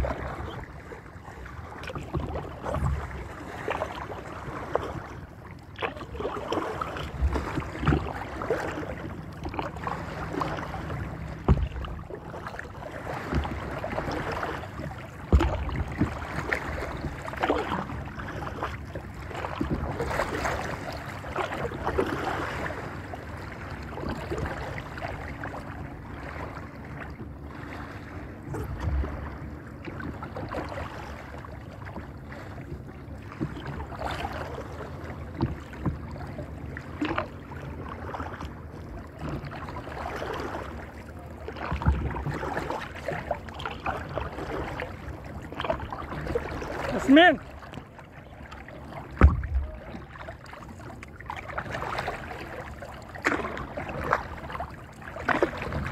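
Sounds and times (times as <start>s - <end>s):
water splashing against hull: 0.0s - 55.9s.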